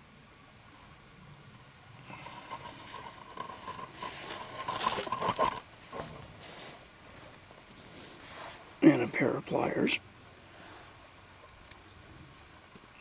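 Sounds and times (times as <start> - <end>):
metal scraping and clicking: 2.1 - 6.4.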